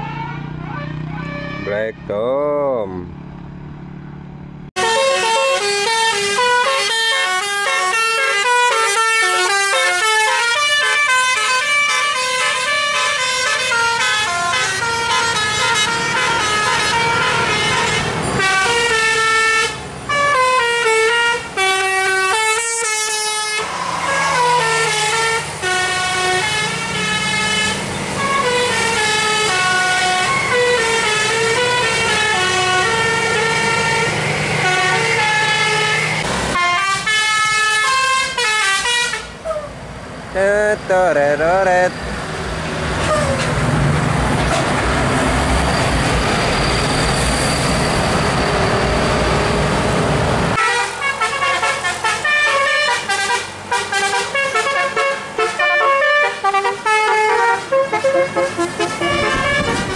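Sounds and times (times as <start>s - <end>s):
musical bus air horn: 0.0s - 1.8s, 4.8s - 39.5s, 50.5s - 59.9s.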